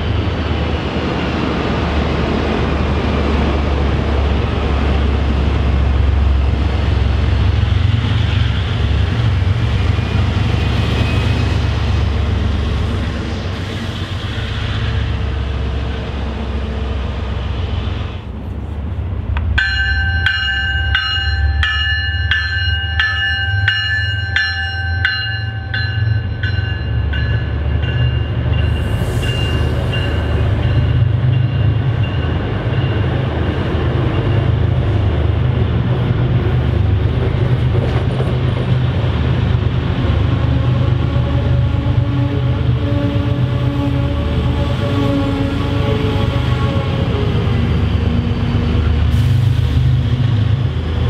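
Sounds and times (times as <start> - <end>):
diesel locomotive rumbling: 0.0 - 51.0
locomotive bell ringing: 19.6 - 34.9.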